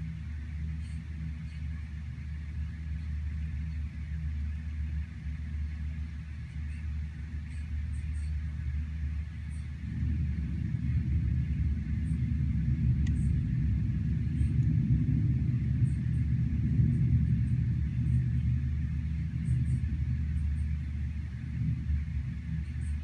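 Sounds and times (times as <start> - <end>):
rainstorm rumble: 0.0 - 23.0
tiny ticks: 13.0 - 13.3.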